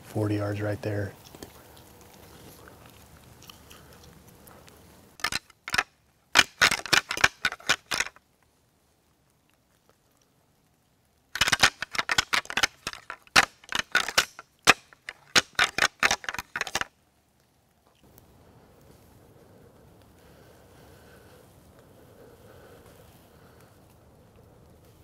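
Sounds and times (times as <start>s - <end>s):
antlers clacking together: 5.2s - 8.2s, 11.4s - 16.9s.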